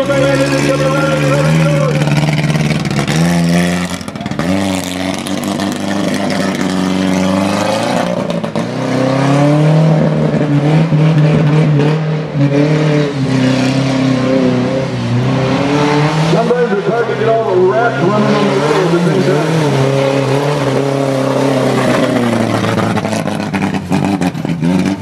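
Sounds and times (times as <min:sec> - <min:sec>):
truck engine revving: 0:00.0 - 0:25.0.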